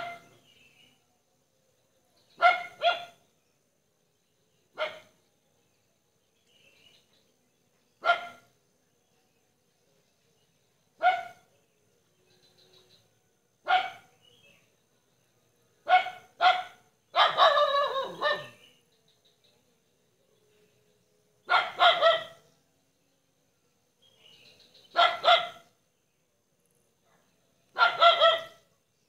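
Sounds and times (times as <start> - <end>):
dog barking: 0.0 - 0.3, 2.4 - 3.2, 4.8 - 5.1, 8.0 - 8.5, 11.0 - 11.5, 13.6 - 14.1, 15.8 - 18.6, 21.5 - 22.4, 24.9 - 25.7, 27.0 - 28.7.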